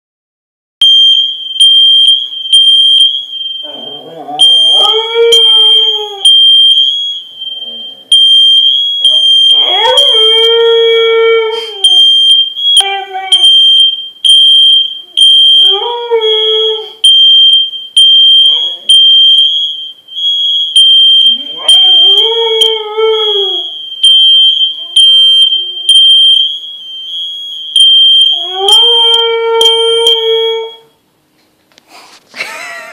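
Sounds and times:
fire alarm tone: 0:00.8 - 0:31.1
dog howling: 0:03.6 - 0:06.3, 0:09.5 - 0:12.0, 0:12.8 - 0:13.4, 0:28.3 - 0:30.8.

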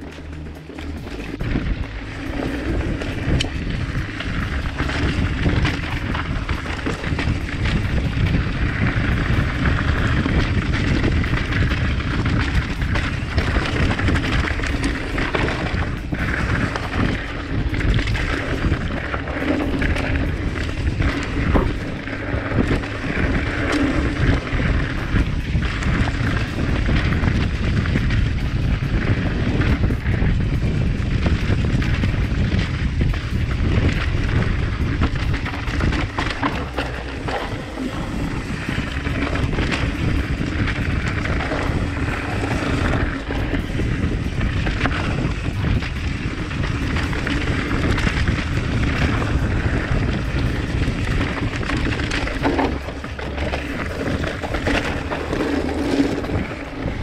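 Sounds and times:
bike rattling: 0:00.0 - 0:57.0
wind buffeting microphone: 0:00.0 - 0:57.0
tyres crunching on rocks: 0:33.0 - 0:57.0.

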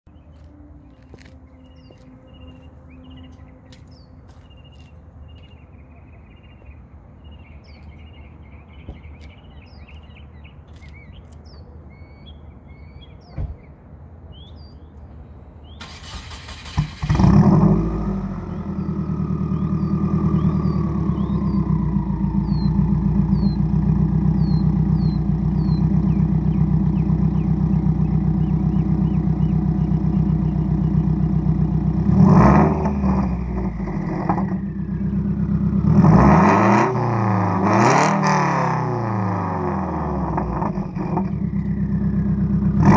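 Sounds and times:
engine whine: 0:00.1 - 0:06.9, 0:15.8 - 0:42.9
birds chirping: 0:00.1 - 0:42.9
car engine starting and idling: 0:15.7 - 0:42.9.

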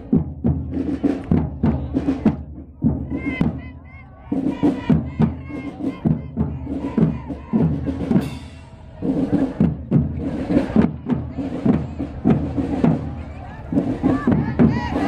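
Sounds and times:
marching drums beating: 0:00.0 - 0:15.0.

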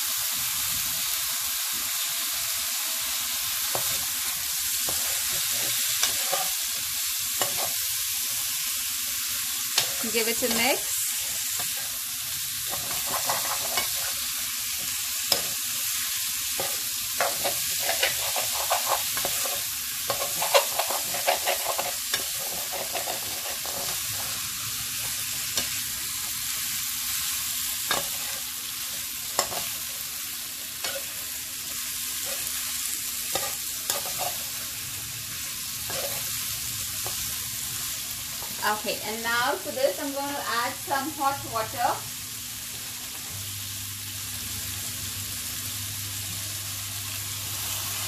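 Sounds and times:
vegetables sizzling in a pan: 0:00.0 - 0:48.0
metal spoon scraping a pan: 0:04.8 - 0:07.9, 0:12.6 - 0:15.6, 0:16.5 - 0:26.4, 0:27.9 - 0:30.1, 0:30.8 - 0:32.6, 0:33.3 - 0:34.7, 0:35.4 - 0:36.4.

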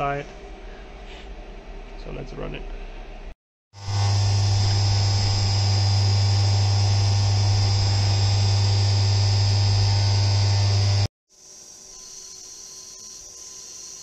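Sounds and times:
high-pitched whine: 0:03.8 - 0:11.1
milling machine low hum: 0:03.8 - 0:11.1.

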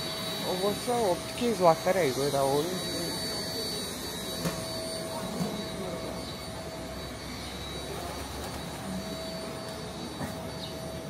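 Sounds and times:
city street background noise: 0:00.0 - 0:11.0
faint constant hum: 0:00.0 - 0:11.0.

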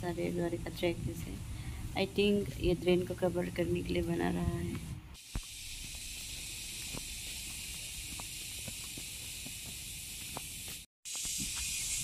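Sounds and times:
steady high hiss: 0:00.0 - 0:12.0
footsteps on concrete: 0:04.5 - 0:11.7.

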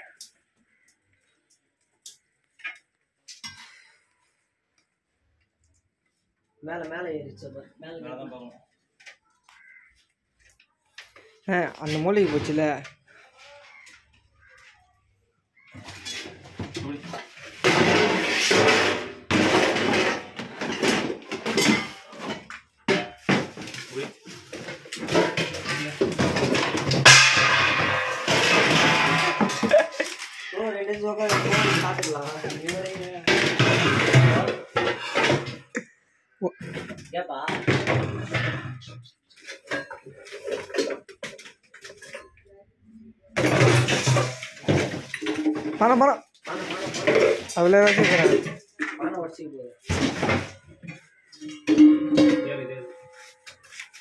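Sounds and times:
metal pots scraping: 0:15.7 - 0:35.8, 0:36.5 - 0:42.4, 0:43.4 - 0:49.2, 0:49.8 - 0:54.0
metal pots clanking: 0:15.8 - 0:35.8, 0:43.4 - 0:49.0, 0:49.9 - 0:53.6.

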